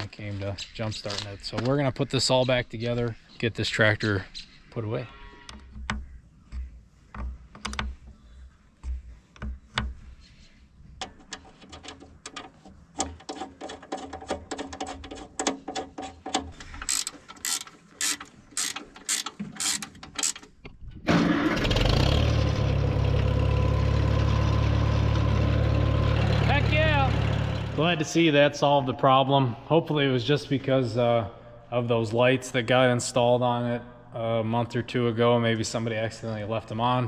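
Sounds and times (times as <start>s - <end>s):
ratchet wrench clicking: 16.8s - 20.5s
tractor engine running: 21.1s - 28.1s.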